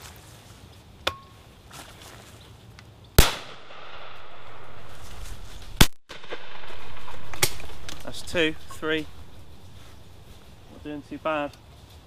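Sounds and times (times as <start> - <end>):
shotgun shots: 3.2 - 9.5.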